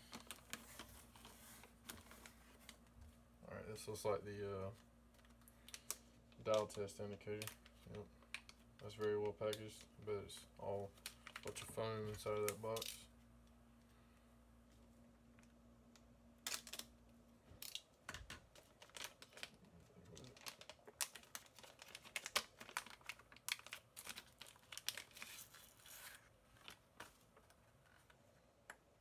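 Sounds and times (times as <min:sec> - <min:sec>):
plastic bag crinkling and tearing: 0:00.0 - 0:02.8, 0:05.2 - 0:13.1, 0:16.4 - 0:16.9, 0:17.6 - 0:17.9, 0:18.5 - 0:28.2.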